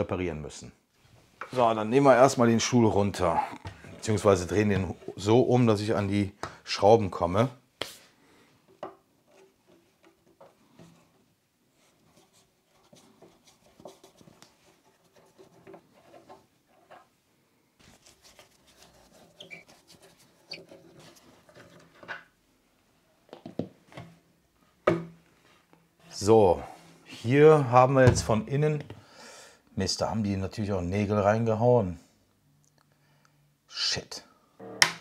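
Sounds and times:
screw squeaking: 19.4 - 19.7.

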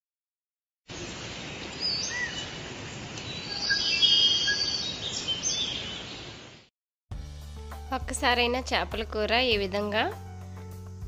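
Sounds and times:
birds chirping: 0.9 - 6.6.

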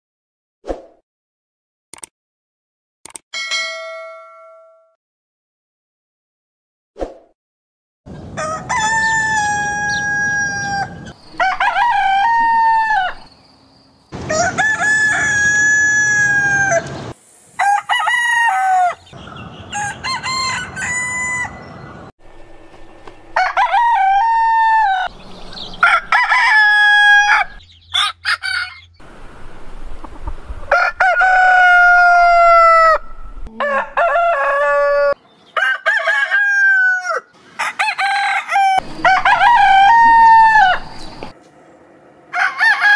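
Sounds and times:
roosters crowing: 8.1 - 13.4, 14.1 - 22.1, 23.1 - 29.2, 30.6 - 41.4, 42.3 - 42.9.

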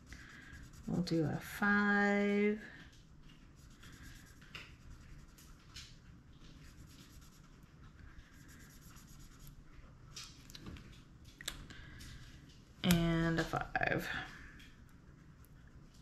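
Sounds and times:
marker scratching on paper: 6.6 - 7.4, 8.3 - 9.5.

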